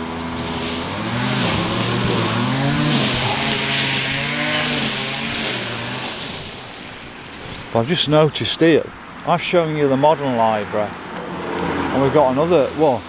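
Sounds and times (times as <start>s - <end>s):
vehicle engine accelerating: 0.0s - 7.4s
tyre and road hiss: 0.0s - 9.6s, 11.4s - 13.0s.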